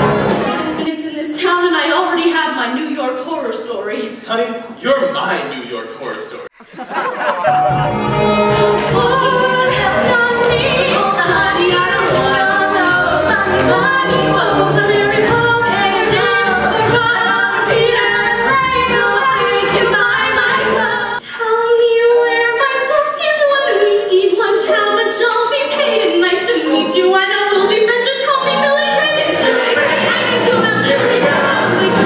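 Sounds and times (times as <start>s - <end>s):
musical accompaniment: 0.0s - 0.9s, 7.3s - 21.2s, 22.0s - 32.0s
women singing show tune: 8.6s - 32.0s.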